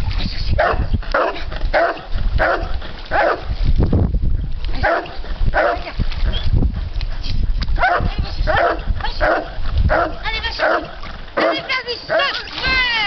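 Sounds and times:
dog barking: 0.6s - 3.5s, 4.8s - 5.8s, 7.8s - 12.3s.

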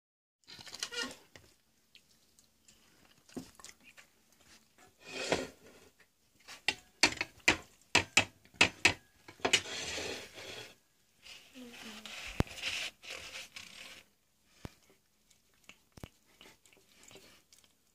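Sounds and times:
cat chewing and licking: 1.4s - 4.6s, 14.5s - 17.9s.

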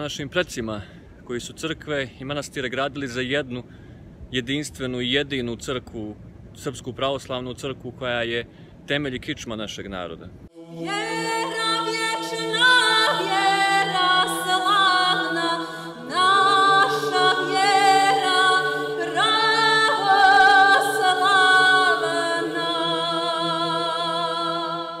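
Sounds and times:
choir chanting a cappella: 10.5s - 25.0s.

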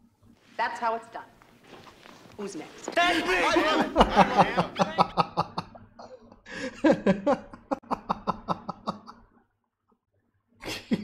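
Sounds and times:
man laughing heartily: 3.0s - 9.3s, 10.6s - 11.0s.

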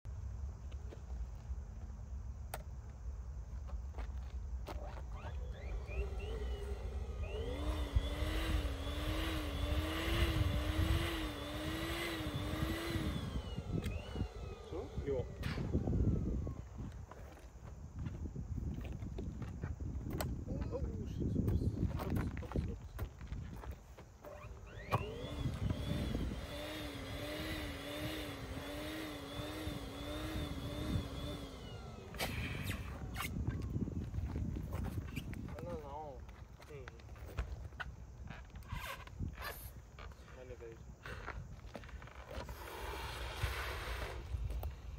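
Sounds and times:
electric air pump humming: 5.3s - 17.0s, 24.4s - 34.4s, 42.3s - 44.9s
wind rumble on microphone: 5.5s - 44.9s.

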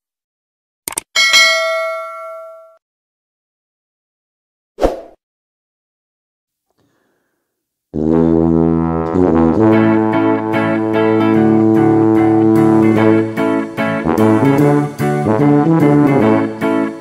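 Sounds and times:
background music with low chords: 8.8s - 17.0s.

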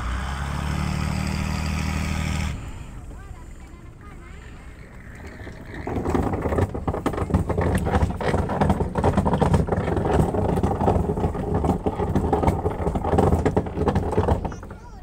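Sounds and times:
boat engine clattering: 0.0s - 15.0s.

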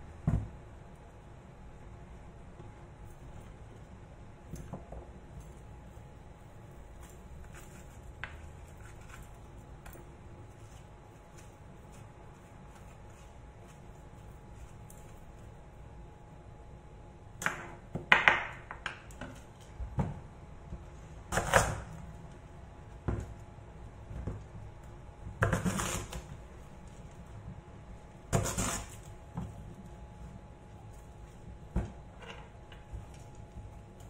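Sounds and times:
knife cutting pumpkin: 25.4s - 26.4s, 28.3s - 29.9s.

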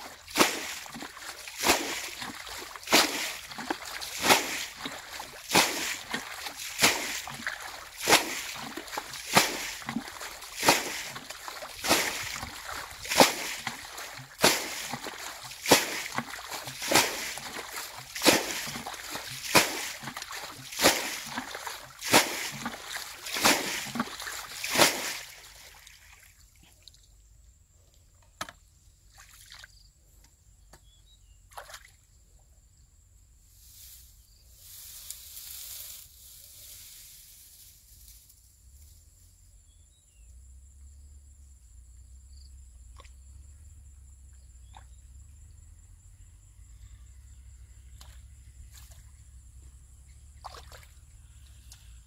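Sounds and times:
water splashing from bucket: 0.0s - 26.3s, 50.4s - 51.7s.

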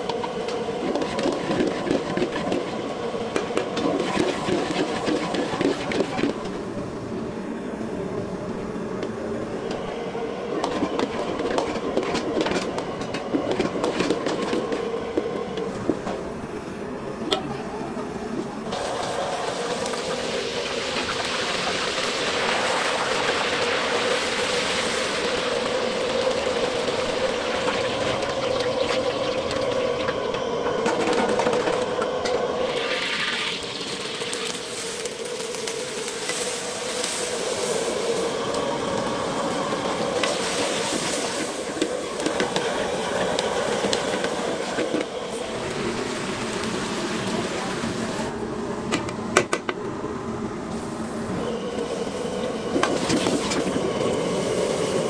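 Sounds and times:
wok burner roar: 0.0s - 55.0s
food sizzling in hot oil: 18.7s - 30.1s, 32.7s - 38.5s.

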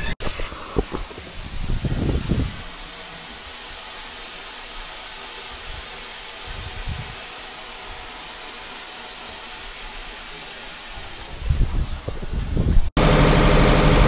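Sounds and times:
steam hissing: 0.0s - 14.0s.

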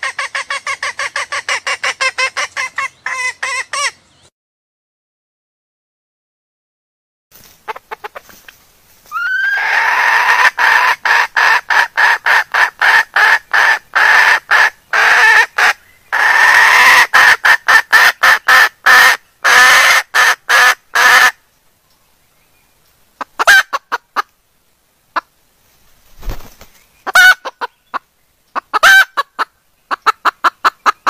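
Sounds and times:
hen clucking calls: 0.0s - 4.1s, 7.6s - 21.4s, 23.2s - 24.3s, 26.2s - 31.0s.

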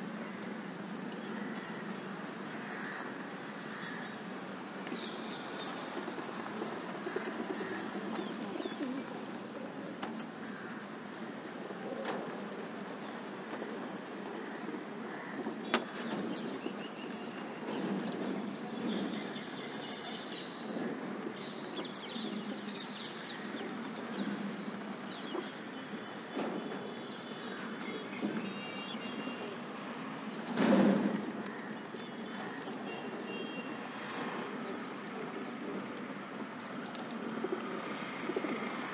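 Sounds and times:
pigeons cooing: 5.7s - 16.2s, 34.4s - 38.9s.

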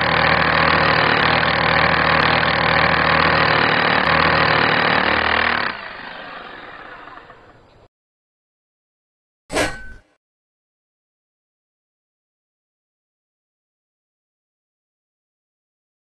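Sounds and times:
power drill drilling into masonry: 0.0s - 7.6s.

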